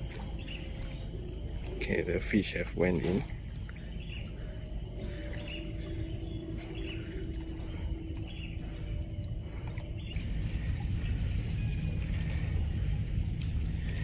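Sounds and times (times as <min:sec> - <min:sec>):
faint bird chirps: 0:00.0 - 0:14.0
faint steady hum: 0:00.0 - 0:14.0
steady low rumble: 0:00.0 - 0:14.0.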